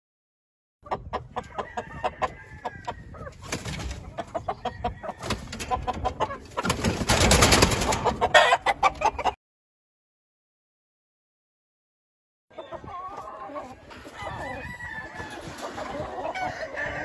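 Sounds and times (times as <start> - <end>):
chickens clucking: 0.8 - 9.4, 12.5 - 17.0.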